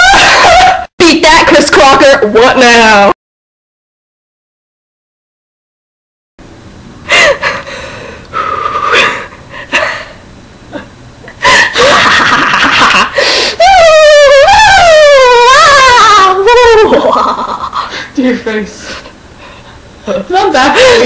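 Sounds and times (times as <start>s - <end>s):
woman laughing hard: 0.0s - 0.9s, 7.1s - 7.8s, 10.8s - 18.1s
woman squealing: 13.6s - 17.7s.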